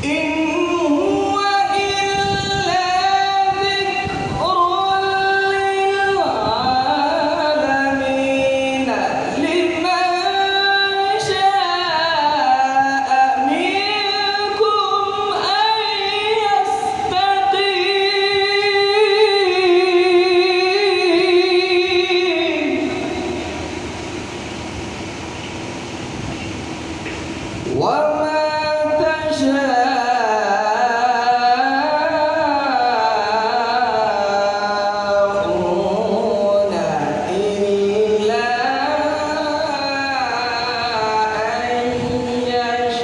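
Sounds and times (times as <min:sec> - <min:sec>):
man chanting through microphones: 0:00.0 - 0:23.8, 0:27.6 - 0:43.0.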